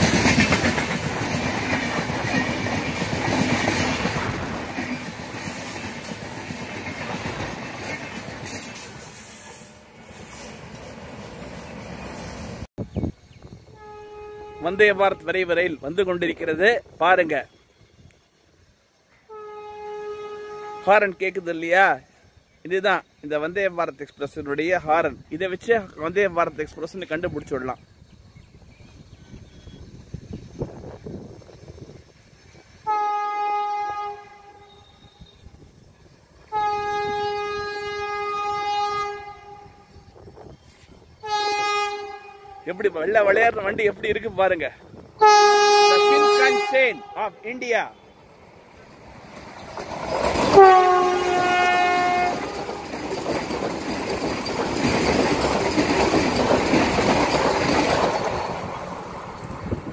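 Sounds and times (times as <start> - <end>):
train wheels rushing on rails: 0.0 - 12.7, 21.0 - 41.4, 42.0 - 59.9
train horn blasts: 13.6 - 15.7, 19.2 - 21.2, 32.8 - 35.6, 36.5 - 40.1, 41.2 - 42.7, 45.2 - 47.5, 50.5 - 52.9.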